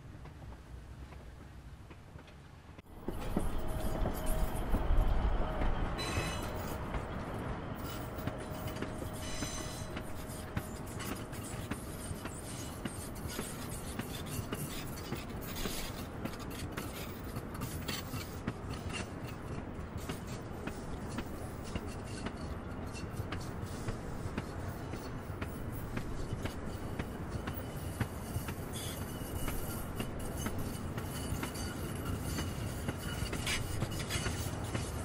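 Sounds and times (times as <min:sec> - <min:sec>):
rail cars rattling and clicking: 0:00.0 - 0:35.0
diesel locomotive rumble: 0:02.9 - 0:16.4
wheel squeal: 0:03.0 - 0:35.0.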